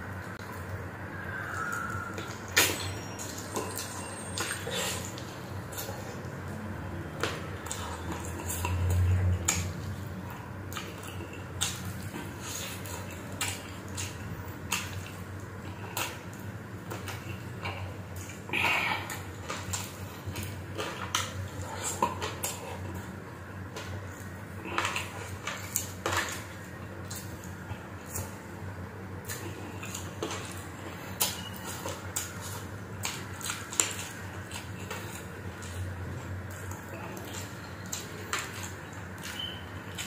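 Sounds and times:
person chewing and lip smacking: 0:01.4 - 0:40.0.

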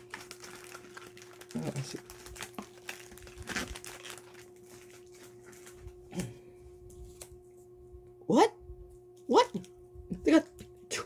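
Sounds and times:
plastic wrappers crinkling: 0:00.0 - 0:06.0.

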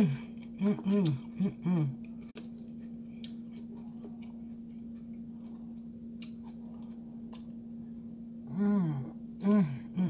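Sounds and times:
steady low hum: 0:00.0 - 0:10.0
chewing and mouth smacks: 0:02.0 - 0:07.6.

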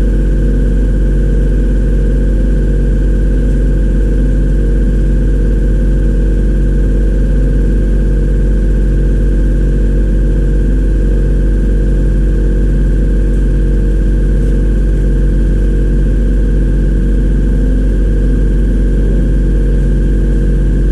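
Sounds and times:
machine humming: 0:10.2 - 0:20.9.

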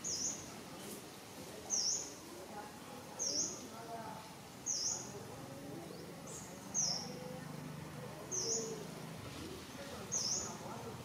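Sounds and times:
bird chirping: 0:00.0 - 0:00.5, 0:04.6 - 0:05.2, 0:05.8 - 0:07.3, 0:08.3 - 0:08.9, 0:09.7 - 0:10.7.

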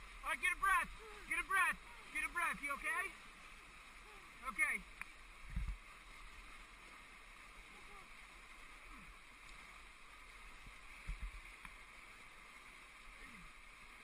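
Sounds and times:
whitewater rapids rushing: 0:00.0 - 0:05.0.

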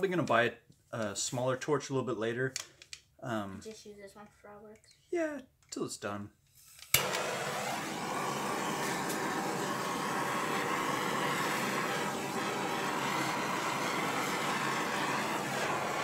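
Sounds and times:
gas torch flame hissing: 0:06.6 - 0:16.0.

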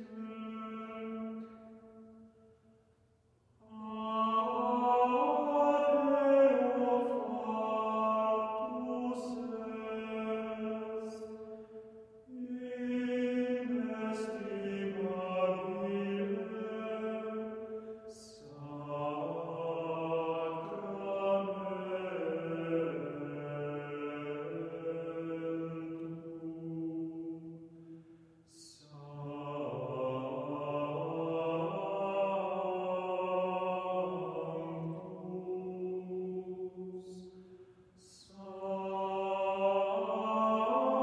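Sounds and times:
choir singing chant-like phrases: 0:00.0 - 0:01.9, 0:03.6 - 0:41.0.

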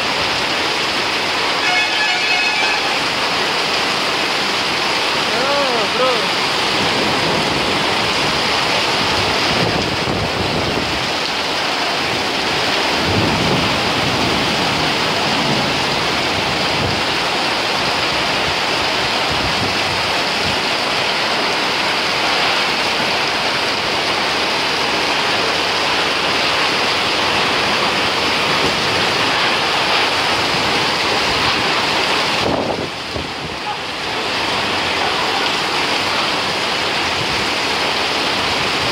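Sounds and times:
heavy rain pouring: 0:00.0 - 0:38.9
gusty wind: 0:06.0 - 0:35.0.

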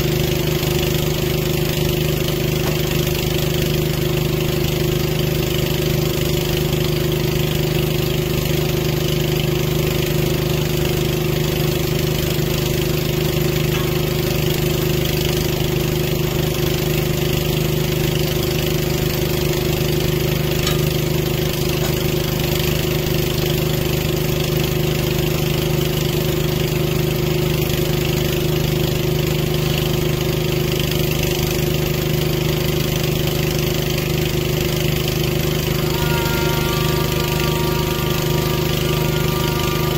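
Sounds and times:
engine running steadily: 0:00.0 - 0:39.9.

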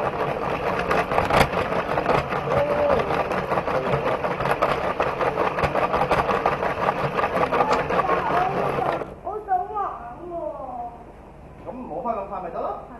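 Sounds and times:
wheels clicking on plastic track: 0:00.0 - 0:09.1
toy train motor hum: 0:00.0 - 0:09.2.

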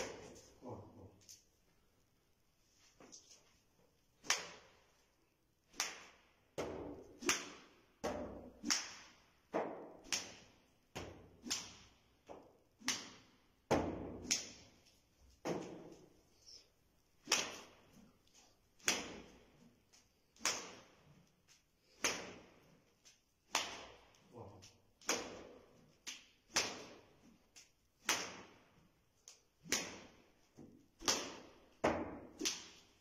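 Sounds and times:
whip cracks: 0:00.0 - 0:00.6, 0:04.2 - 0:05.0, 0:05.7 - 0:16.1, 0:17.1 - 0:33.0.

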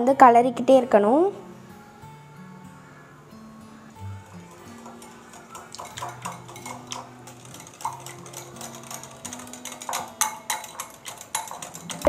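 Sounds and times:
soft background music: 0:00.0 - 0:12.0
whisk clinking against glass bowl: 0:04.3 - 0:12.0.

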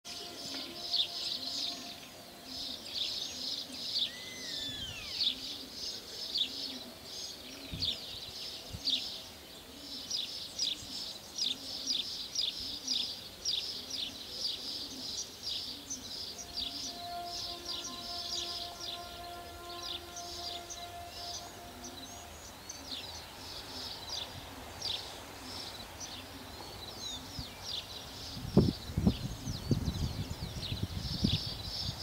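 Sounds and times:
birds chirping: 0:00.0 - 0:32.0
gliding whistled bird call: 0:00.1 - 0:05.7, 0:16.3 - 0:23.1.

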